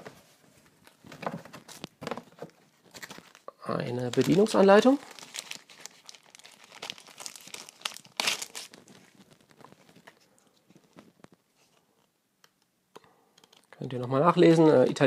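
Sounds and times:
paper handling: 0.9s - 11.8s
plastic sleeve crinkling: 2.8s - 11.8s.

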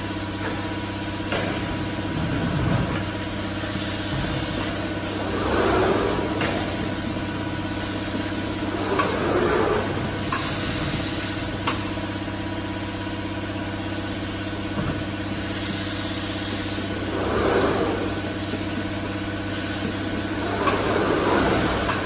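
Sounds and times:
machine motor hum: 0.1s - 22.0s
short air hisses: 15.6s - 18.4s.

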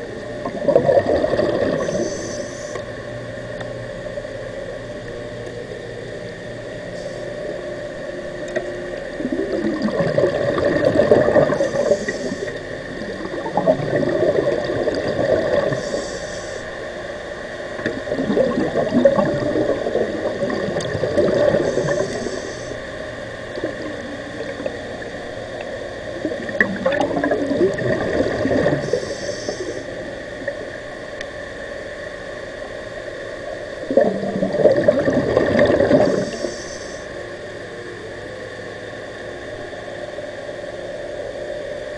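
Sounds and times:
diver exhaling bubbles underwater: 0.4s - 2.8s, 8.6s - 16.8s, 17.8s - 30.9s, 33.8s - 37.0s
regulator inhalation hiss: 1.8s - 2.8s, 11.4s - 13.1s, 15.6s - 16.8s, 21.5s - 22.8s, 28.8s - 30.0s, 36.0s - 37.2s.

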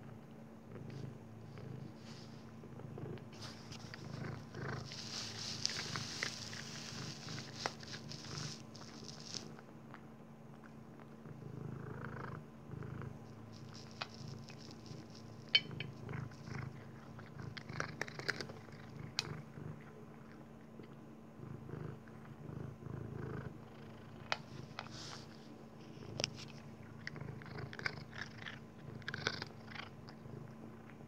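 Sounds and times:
cat purring: 0.0s - 31.0s
cat crunching dry kibble: 3.2s - 11.2s, 13.6s - 22.4s, 24.1s - 31.0s.

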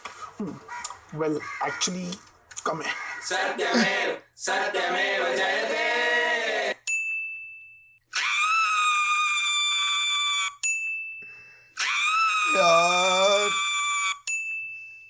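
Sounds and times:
woman screaming: 8.1s - 10.5s, 11.8s - 14.2s
person speaking: 12.5s - 13.6s.

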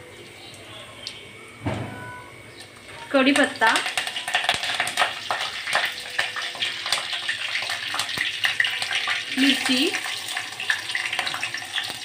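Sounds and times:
spices sizzling in hot oil: 2.4s - 12.0s.

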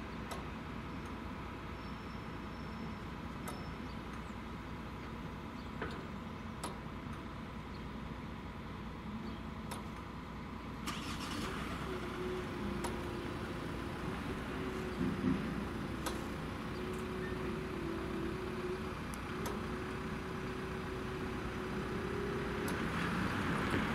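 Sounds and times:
vehicle engine running: 10.9s - 23.9s.

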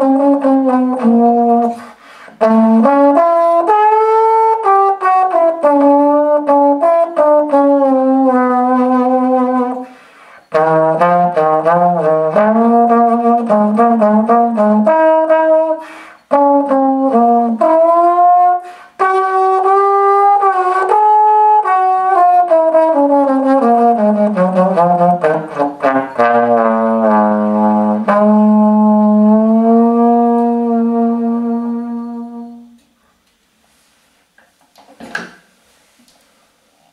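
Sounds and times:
slide trombone playing: 0.0s - 33.0s.

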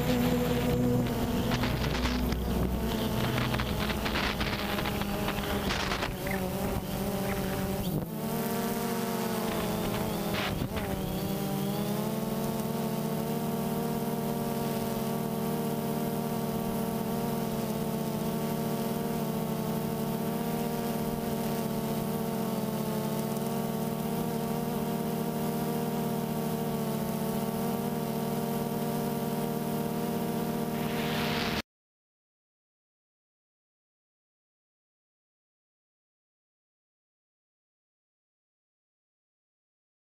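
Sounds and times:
drone propellers buzzing: 0.0s - 31.6s.

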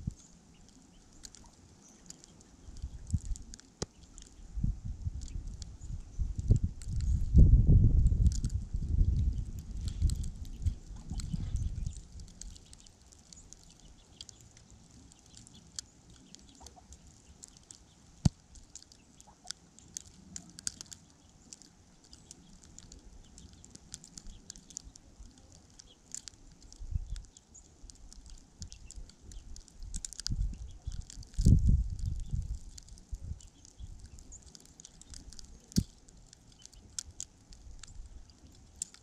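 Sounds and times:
icy snow ticking on microphone: 0.0s - 39.0s
wind gust buffeting microphone: 4.4s - 12.6s, 29.8s - 34.2s.

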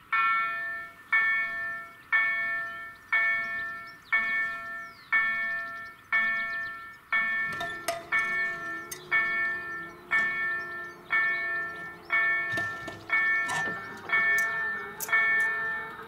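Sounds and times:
level crossing warning bell: 0.0s - 16.0s.

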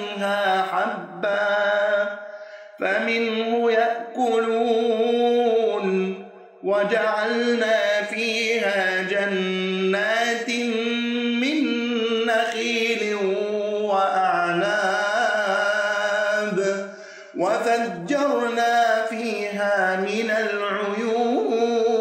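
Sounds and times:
man reciting in melodic style: 0.0s - 22.0s.

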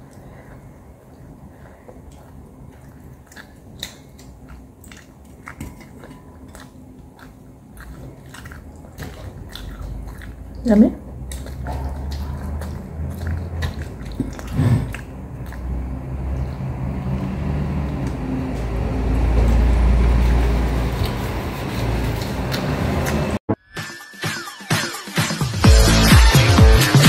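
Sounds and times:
chewing with wet smacking: 0.0s - 23.3s.

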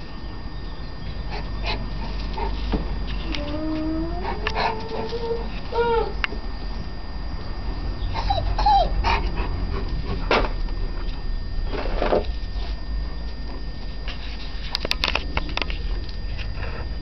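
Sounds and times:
steady low rumble: 0.0s - 17.0s
dog whimpering: 3.2s - 6.3s, 8.0s - 9.5s.

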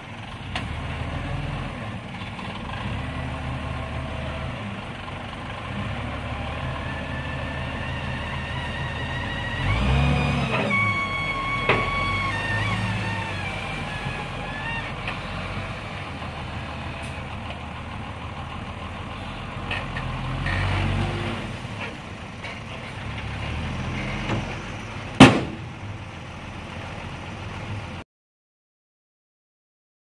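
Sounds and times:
dump truck engine running: 0.0s - 28.0s
loud bang: 25.2s - 25.7s.

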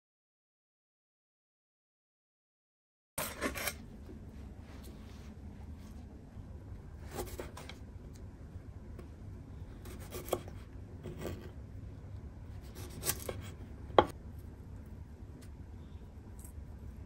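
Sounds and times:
knife cutting on wooden board: 3.2s - 3.8s, 7.0s - 7.8s, 9.8s - 11.6s, 12.6s - 14.1s.

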